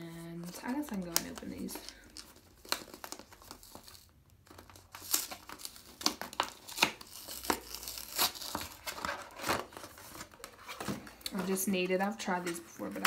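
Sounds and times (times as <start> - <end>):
cardboard box tearing open: 4.8 - 10.9.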